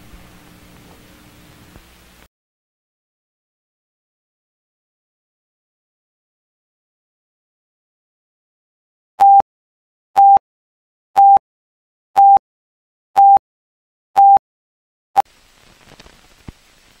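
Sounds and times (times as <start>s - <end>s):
film hiss and crackle: 0.0s - 2.3s, 15.3s - 17.0s
countdown beeps: 9.2s - 9.4s, 10.2s - 10.4s, 11.2s - 11.4s, 12.2s - 12.4s, 13.2s - 13.4s, 14.2s - 14.4s.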